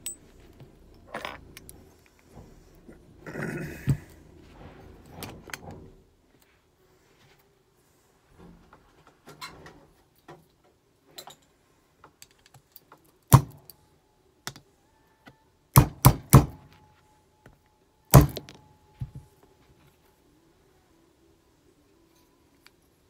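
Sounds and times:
small parts clicking: 11.2 - 13.8
hammer tapping metal punch: 18.1 - 18.6.

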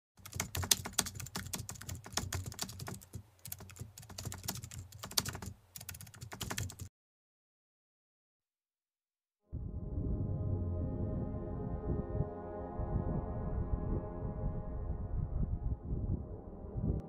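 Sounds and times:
keyboard typing clicks: 0.2 - 6.9.

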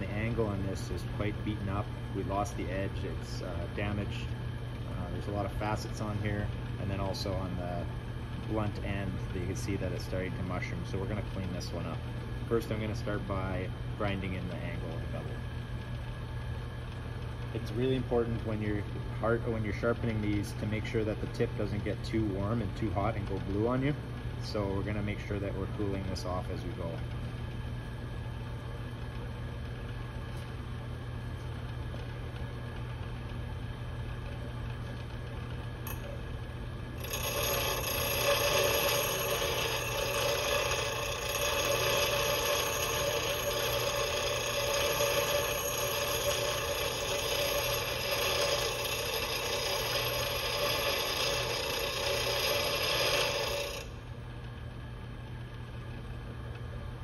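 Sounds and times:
steel grinding on grinding wheel: 36.9 - 54.0
bench grinder motor humming: 36.9 - 54.1.

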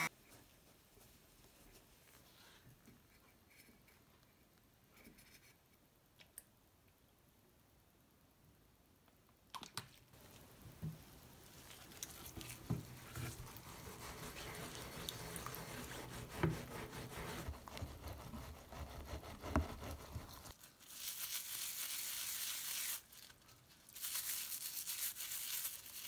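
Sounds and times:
soapy water sloshing: 9.7 - 18.0
sponge scrubbing tyre: 12.1 - 20.5.

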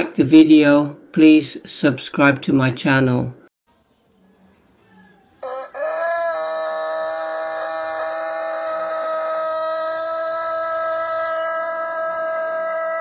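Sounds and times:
rooster crowing: 4.2 - 13.0.

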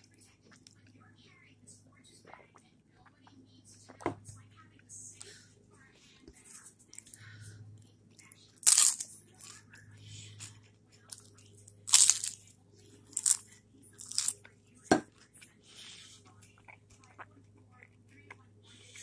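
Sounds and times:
crunchy rice cakes being chewed: 8.2 - 19.0.

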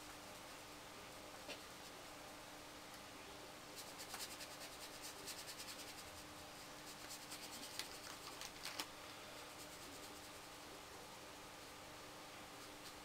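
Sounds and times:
faint steady hum: 0.0 - 13.0
paintbrush scratching on paper: 3.7 - 8.3, 9.4 - 10.7.

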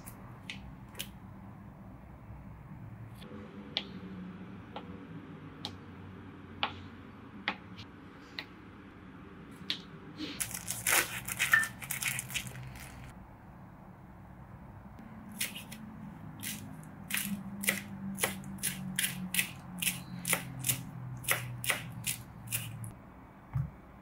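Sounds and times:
knife crunching through plastic wrap: 10.4 - 13.1.

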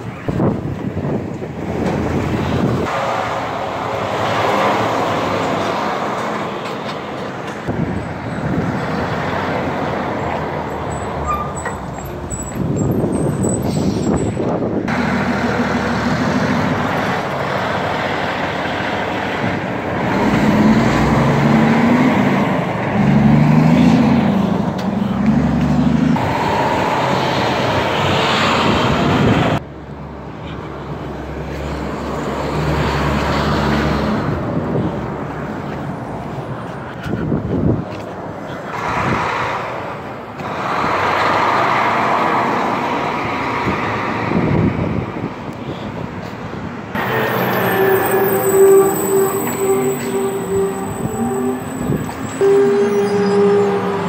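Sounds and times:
street traffic noise: 0.0 - 54.0
diesel truck engine pulling away: 1.7 - 29.6, 38.7 - 45.1, 46.9 - 54.0.

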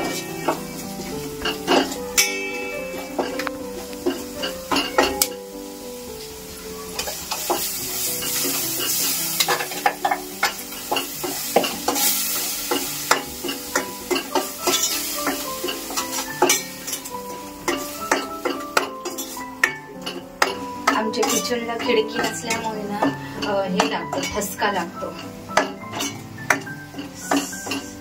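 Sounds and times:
spices sizzling in hot oil: 0.0 - 28.0
steel spoon scraping a pot: 7.0 - 20.2, 25.2 - 27.9.

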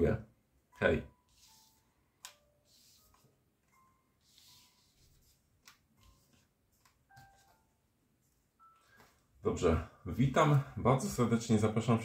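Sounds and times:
cards rustling and shuffling: 1.2 - 7.7.

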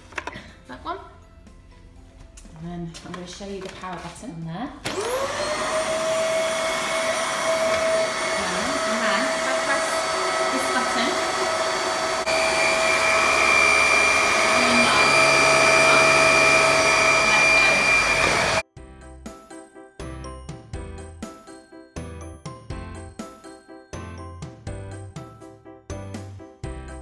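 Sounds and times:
vacuum cleaner motor running: 4.8 - 18.6.

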